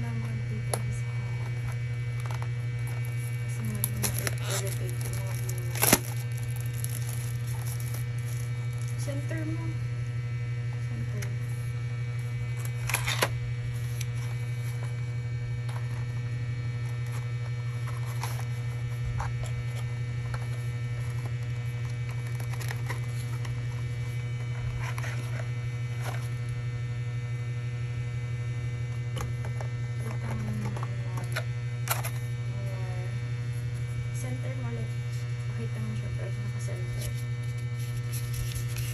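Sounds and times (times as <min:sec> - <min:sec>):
low electrical hum: 0:00.0 - 0:38.9
packaging clicks and rustles: 0:01.5 - 0:09.0, 0:17.0 - 0:23.8.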